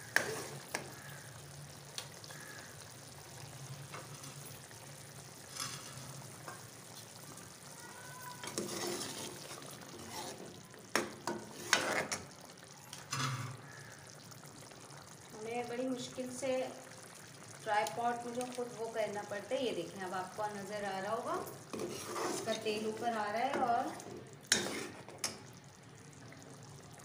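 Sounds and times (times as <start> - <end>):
curry sizzling in a metal pot: 0.0 - 27.0
ladle scraping and knocking pot: 8.4 - 12.2, 21.7 - 22.8, 23.5 - 25.4.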